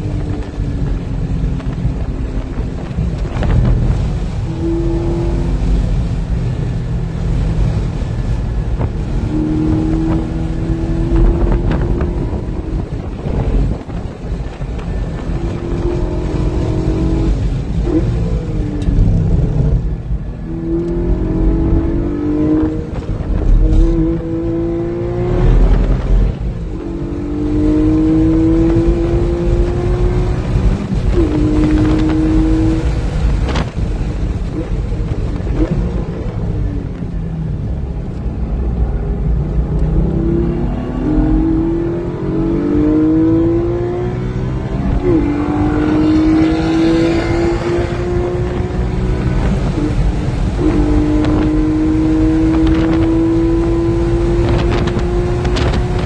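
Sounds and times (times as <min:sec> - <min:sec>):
wind and road noise: 0:00.0 - 0:56.0
car engine revving hard: 0:20.4 - 0:34.6, 0:39.5 - 0:56.0.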